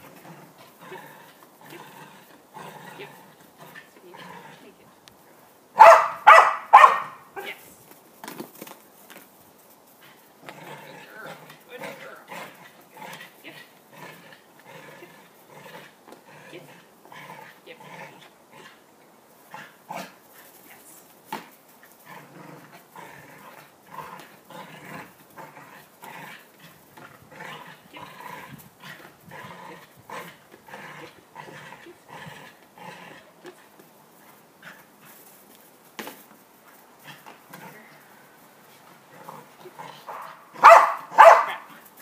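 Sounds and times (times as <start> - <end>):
small dog growling: 0.0 - 4.9, 10.0 - 18.8, 21.8 - 33.8, 37.0 - 41.9.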